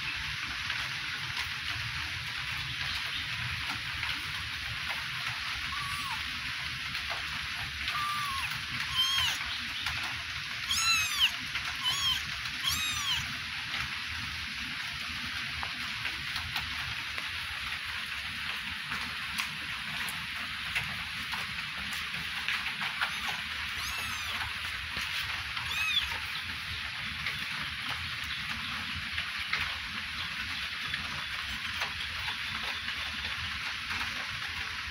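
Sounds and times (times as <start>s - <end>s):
kittens mewing: 5.5s - 6.3s, 7.8s - 9.5s, 10.6s - 13.4s, 22.9s - 26.5s.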